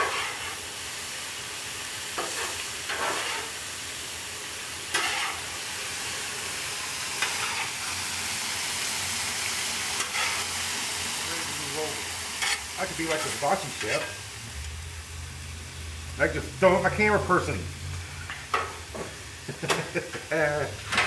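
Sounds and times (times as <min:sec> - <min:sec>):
metal spatula scraping steel: 0:00.0 - 0:00.6, 0:02.2 - 0:03.6, 0:04.9 - 0:05.5, 0:10.0 - 0:10.5, 0:12.4 - 0:14.2
vegetables sizzling on a griddle: 0:00.0 - 0:21.0.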